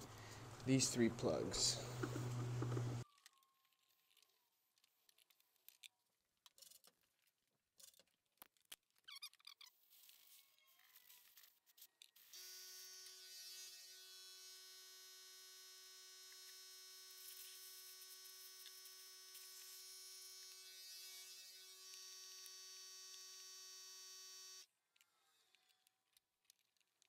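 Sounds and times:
small motor whine: 1.7 - 3.0, 12.3 - 24.6.

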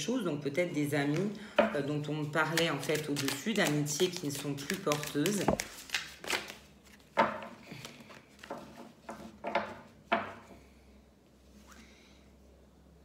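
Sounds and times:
cards tapping and slapping: 2.4 - 10.3.

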